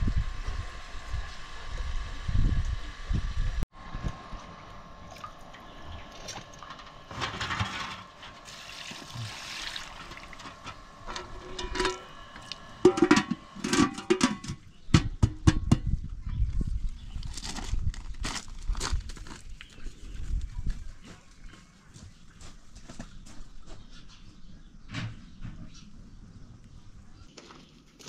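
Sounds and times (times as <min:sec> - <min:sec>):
water splashing and pouring: 0:08.4 - 0:10.4.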